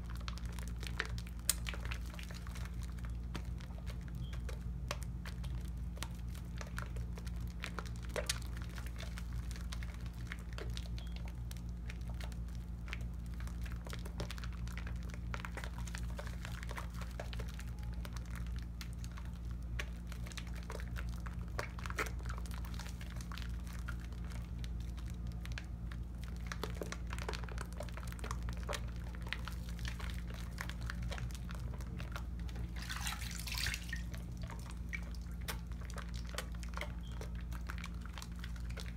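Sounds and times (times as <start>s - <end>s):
hands lathering soap: 26.4s - 38.9s
water splashing: 32.6s - 35.6s.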